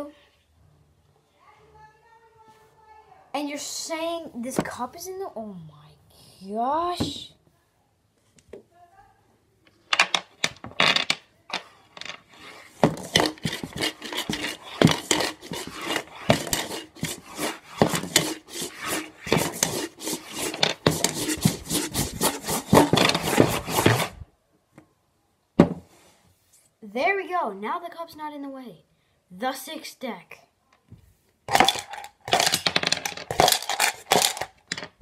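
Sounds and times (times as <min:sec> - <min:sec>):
dice rattling in cup: 0:12.9 - 0:24.1, 0:31.5 - 0:35.0.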